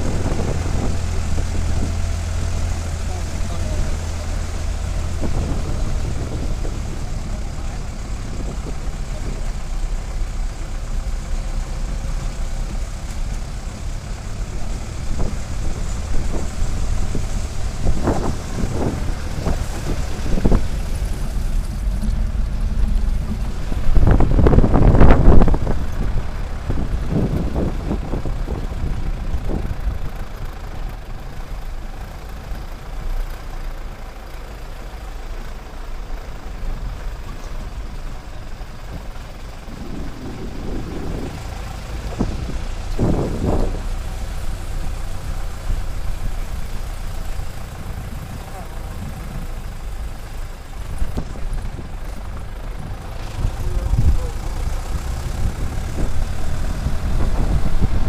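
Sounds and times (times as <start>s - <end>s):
vehicle engine running: 0.0s - 58.0s.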